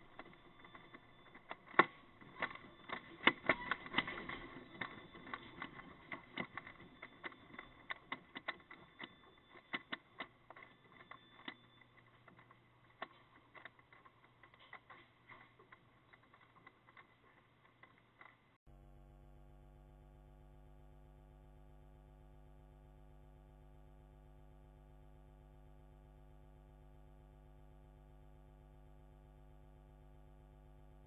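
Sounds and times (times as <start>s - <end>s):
shop merchandise rattling and clattering: 0.0s - 18.6s.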